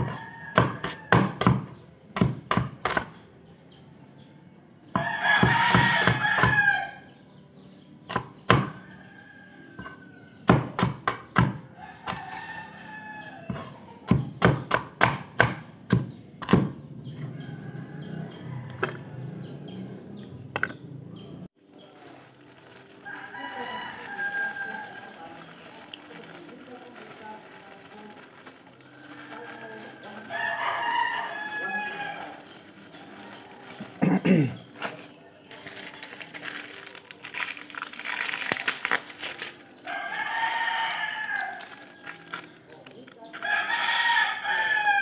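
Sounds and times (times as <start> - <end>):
rooster crowing: 23.0 - 25.0, 30.0 - 32.4, 39.9 - 41.8.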